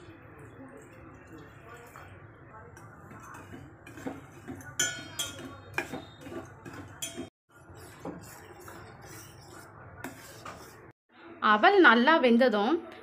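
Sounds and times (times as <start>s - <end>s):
metal spoon scraping a steel pot: 2.7s - 10.9s.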